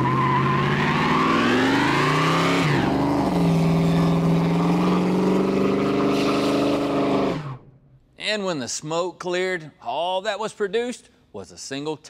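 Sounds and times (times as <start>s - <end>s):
car engine revving hard: 0.0s - 7.6s.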